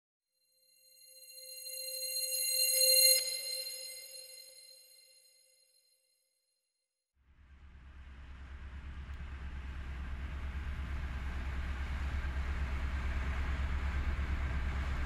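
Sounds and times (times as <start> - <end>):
heavy low rumble with hiss: 7.4 - 15.0.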